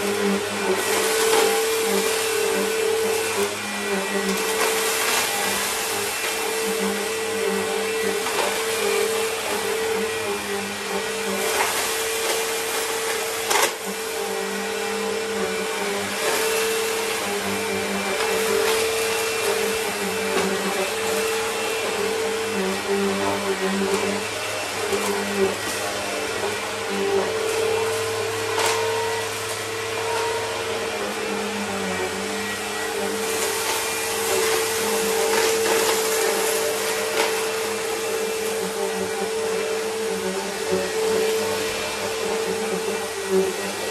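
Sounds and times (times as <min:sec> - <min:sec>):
vacuum cleaner running: 0:00.0 - 0:43.9
debris clicking in vacuum: 0:27.4 - 0:29.8, 0:32.4 - 0:43.9.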